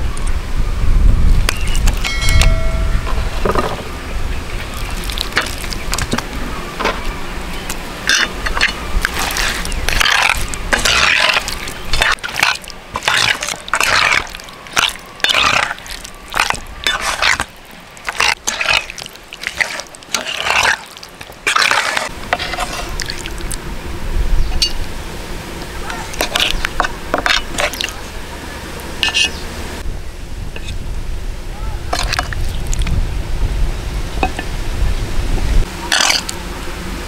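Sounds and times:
spatula squelching in sauce: 8.1 - 23.6.

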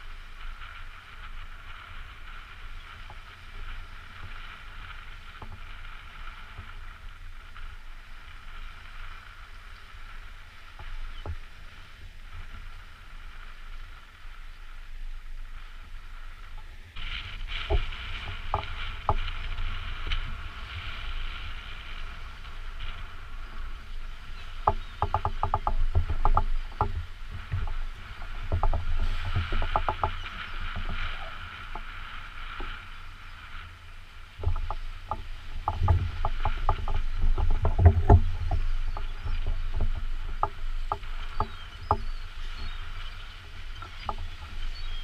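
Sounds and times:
water lapping against rocks: 34.2 - 45.0.

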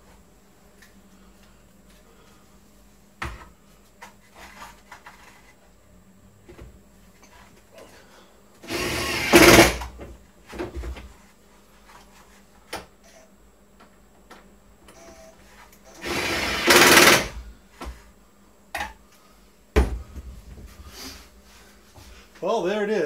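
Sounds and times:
cordless drill driving screw: 8.6 - 9.8, 15.9 - 17.4.

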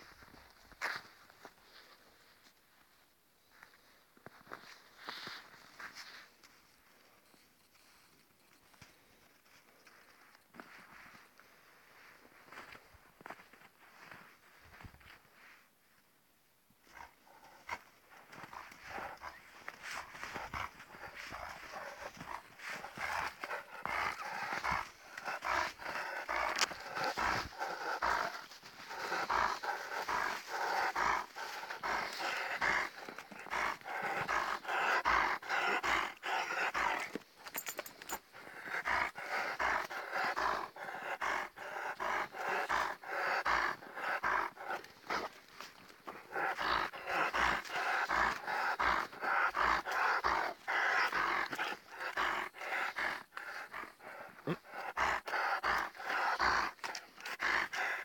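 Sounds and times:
dog panting rapidly: 16.9 - 58.0.

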